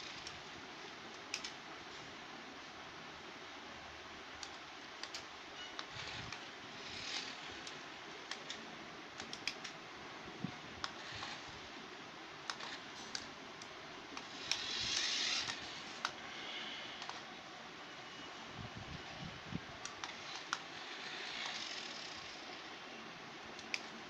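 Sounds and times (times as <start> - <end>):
toy car motor whirring: 0.0 - 0.4, 5.8 - 8.6, 10.8 - 11.6, 12.5 - 13.2, 14.2 - 16.2, 19.8 - 22.7.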